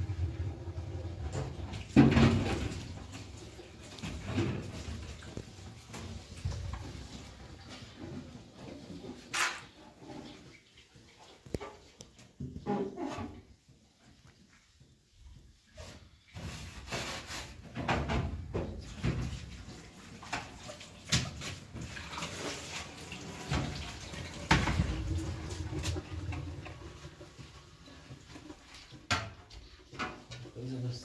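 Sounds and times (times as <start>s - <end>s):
water running from sink tap: 18.9s - 28.8s.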